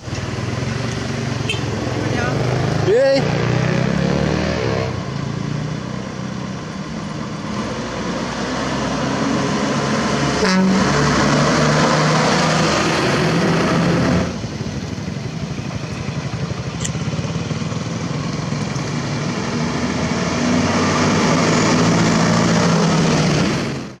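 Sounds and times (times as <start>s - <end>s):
diesel truck engine rumbling: 4.9s - 24.0s.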